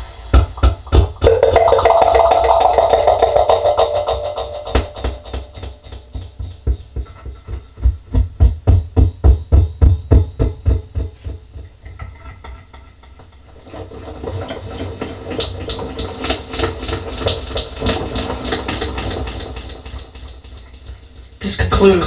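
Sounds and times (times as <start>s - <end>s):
electronic echoing pulses: 1.2s - 7.0s.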